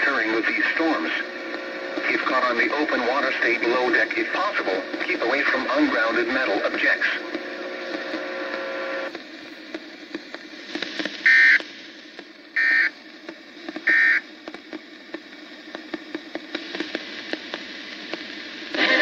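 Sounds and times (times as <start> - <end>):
radio hiss: 0.0 - 19.0
faint irregular clicks: 13.1 - 18.4.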